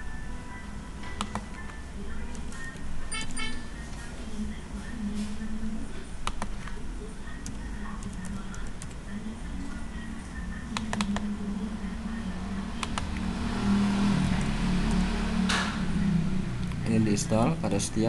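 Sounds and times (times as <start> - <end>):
faint background music: 0.0 - 18.0
computer mouse clicks: 1.1 - 3.4, 6.2 - 6.8, 10.7 - 11.3, 12.8 - 13.3.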